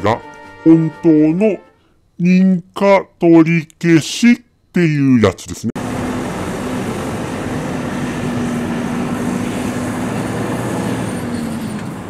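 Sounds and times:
street traffic: 4.8s - 12.0s
vehicle engine humming: 5.7s - 12.0s.

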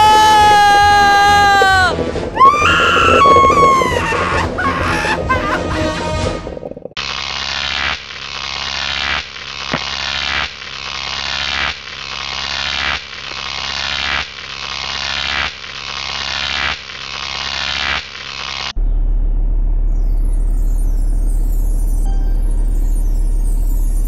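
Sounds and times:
steady low drone: 0.0s - 7.0s, 18.7s - 24.0s
looped noisy electronic swell: 0.0s - 12.5s.

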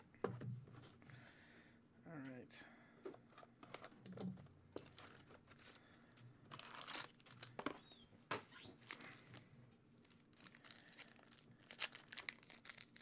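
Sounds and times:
foil pack crinkling: 4.8s - 7.9s, 8.8s - 13.0s.

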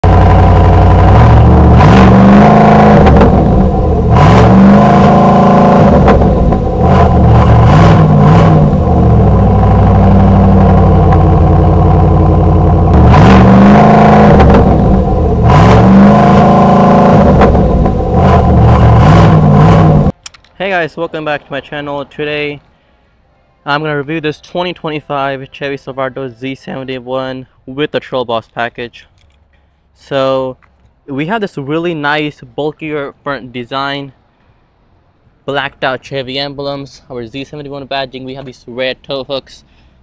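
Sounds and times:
truck engine revving: 0.0s - 20.2s.

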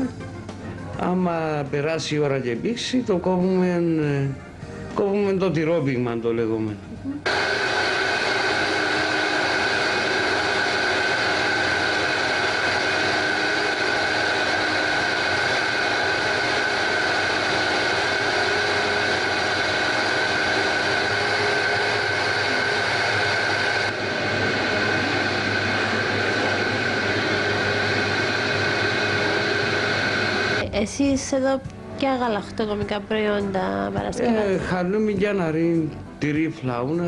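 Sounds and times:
stirrer machine hum: 7.2s - 30.6s
high whine: 7.2s - 30.7s.

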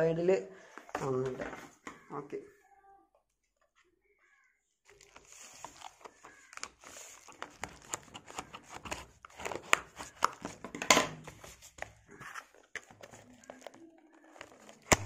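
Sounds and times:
bubble wrap crinkling: 4.9s - 10.7s, 11.3s - 15.0s
cardboard box being handled: 4.9s - 10.7s.

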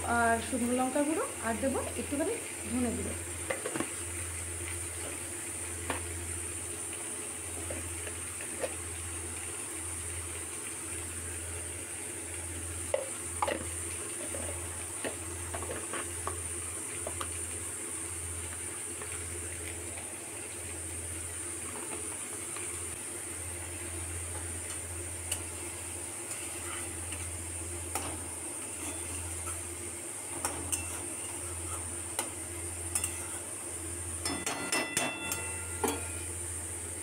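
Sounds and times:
food sizzling in oil: 0.0s - 37.0s
oil popping and crackling: 12.2s - 20.8s.

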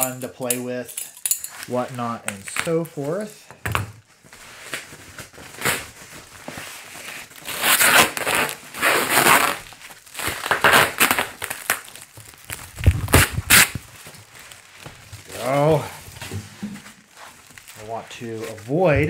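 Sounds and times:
plastic packing crinkling: 4.0s - 19.0s.

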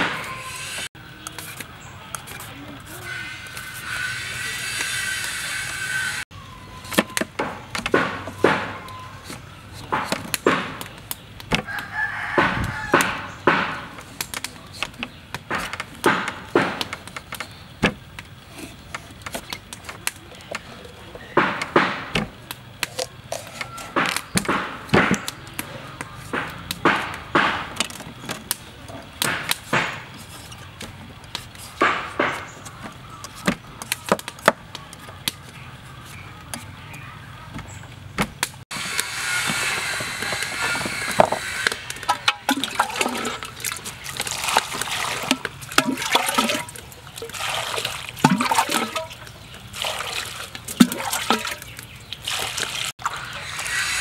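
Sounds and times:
peeler scraping papaya: 0.0s - 6.2s, 38.7s - 44.0s.

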